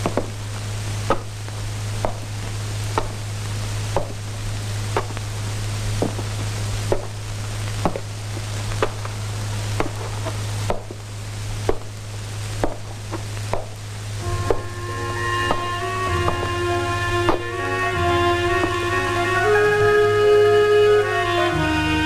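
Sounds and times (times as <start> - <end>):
steady low hum: 0.0 - 22.0
soft string music: 14.2 - 22.0.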